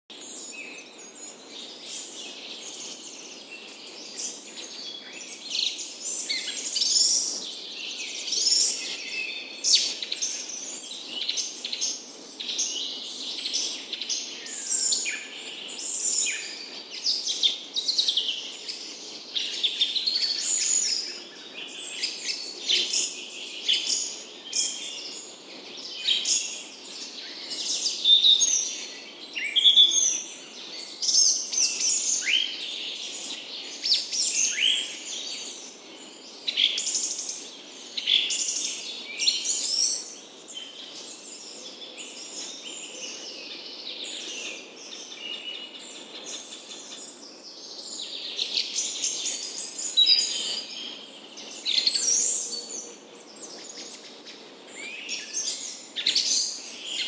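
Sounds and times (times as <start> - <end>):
faint background hiss: 0.1 - 57.0
songbirds chirping and singing: 0.1 - 57.0.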